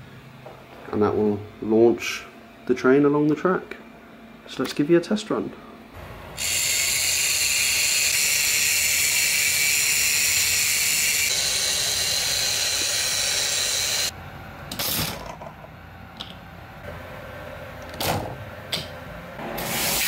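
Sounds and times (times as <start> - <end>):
toy motor whirring through plastic gears: 6.4 - 14.1.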